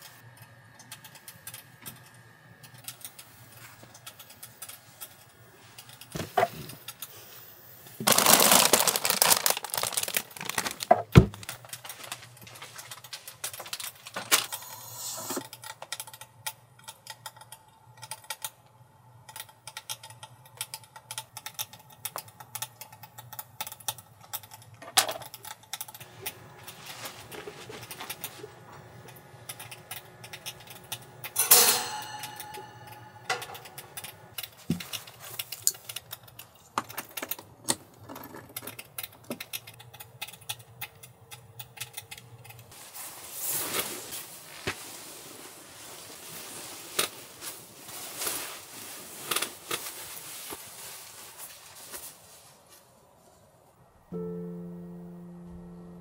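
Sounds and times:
low steady hum: 11.4s - 36.6s, 53.7s - 56.0s.

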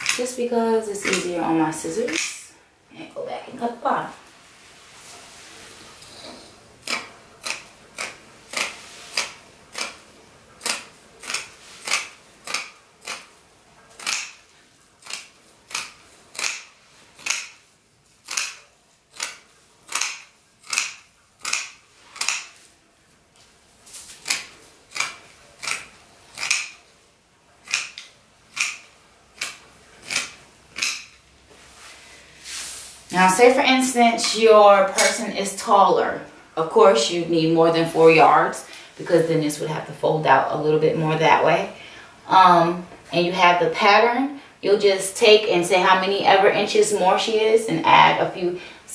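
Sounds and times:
scissors snipping fabric: 1.0s - 1.3s, 6.8s - 10.0s, 10.6s - 13.3s, 14.0s - 14.4s, 15.0s - 17.6s, 18.2s - 22.6s, 24.2s - 26.8s, 27.6s - 28.8s, 29.4s - 31.1s.

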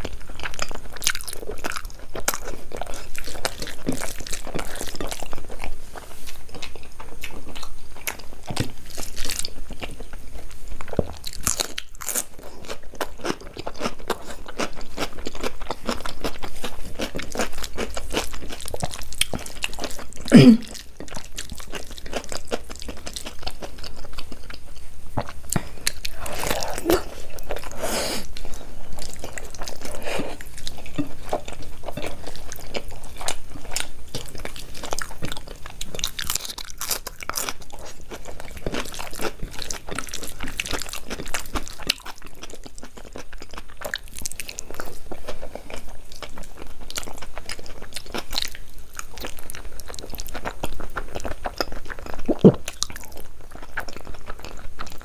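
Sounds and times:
person chewing crunchy food: 0.0s - 55.0s
mouth clicks: 52.3s - 52.6s.

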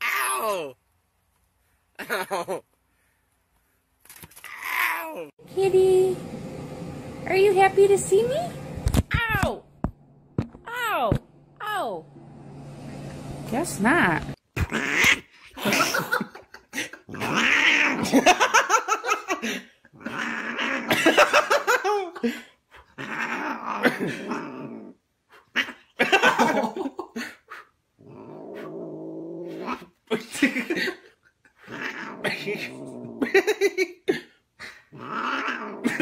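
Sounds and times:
man laughing: 2.0s - 2.7s, 15.6s - 17.2s, 20.9s - 22.5s, 26.0s - 27.3s, 30.1s - 31.2s.

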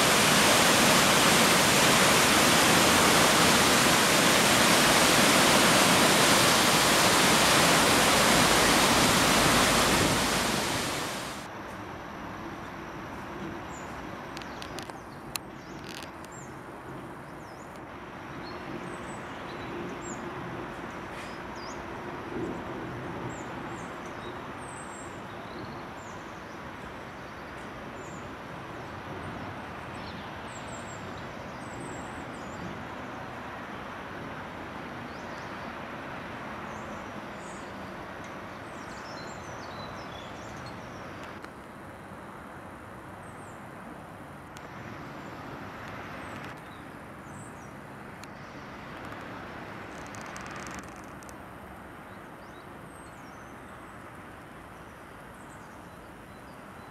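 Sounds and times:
distant outdoor rush: 0.0s - 11.5s.

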